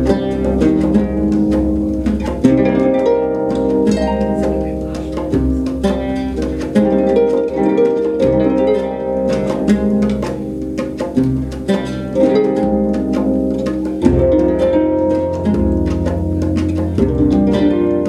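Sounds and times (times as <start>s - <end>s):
hand drum strokes: 0.0s - 18.0s
oud notes: 0.0s - 18.0s
plucked harp: 0.0s - 18.0s.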